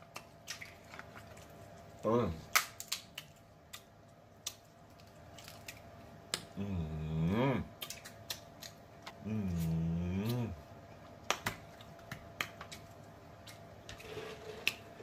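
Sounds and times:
person humming mmm: 6.6s - 7.7s, 9.2s - 10.6s.

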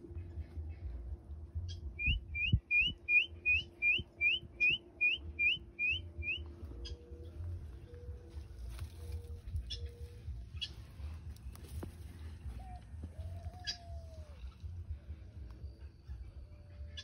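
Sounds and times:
whistled call of rising notes: 2.0s - 7.0s.

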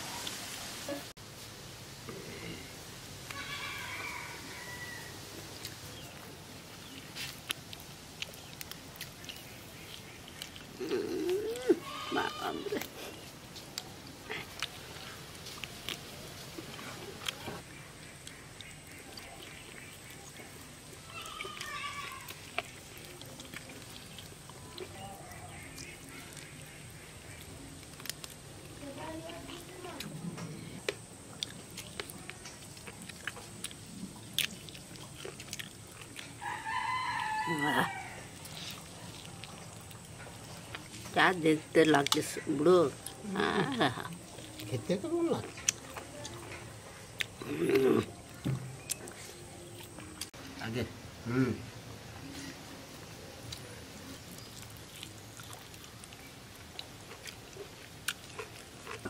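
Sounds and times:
rooster crowing: 3.3s - 5.3s, 36.4s - 38.4s
person chewing: 5.3s - 37.4s, 38.2s - 41.1s, 41.8s - 50.4s, 53.5s - 59.0s.

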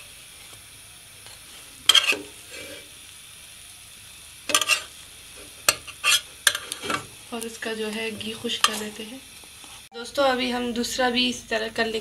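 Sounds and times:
faint sizzle: 0.0s - 12.0s
metal utensils scraping a pan: 1.8s - 2.9s, 4.5s - 5.0s, 5.7s - 7.1s.

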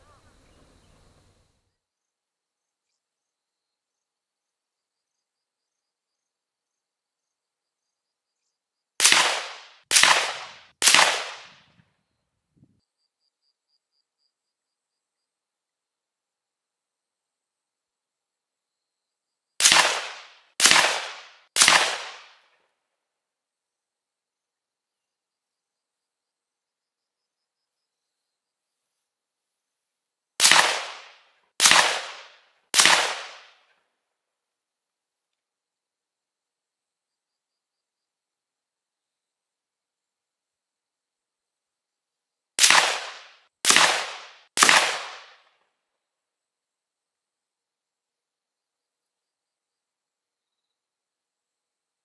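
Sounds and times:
faint cricket chirps: 0.0s - 9.0s, 11.7s - 19.6s, 22.4s - 30.3s, 33.8s - 42.6s, 45.2s - 52.0s
rifle shots with echo: 9.0s - 11.8s, 19.6s - 22.5s, 30.4s - 33.6s, 42.6s - 45.5s.

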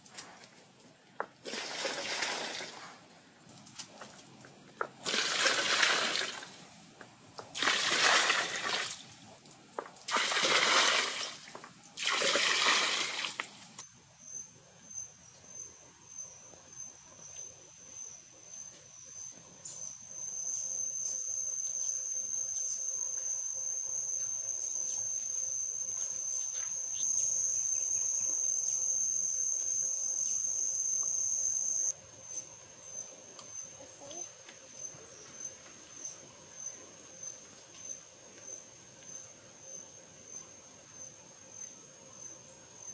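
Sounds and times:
water splashing into pool: 1.4s - 2.9s, 5.0s - 6.6s, 7.5s - 9.1s, 10.0s - 13.8s.

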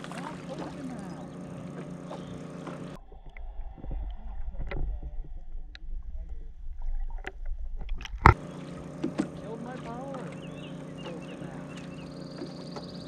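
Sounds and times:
steady hum: 0.0s - 13.0s
underwater rumble of moving water: 0.0s - 13.0s.

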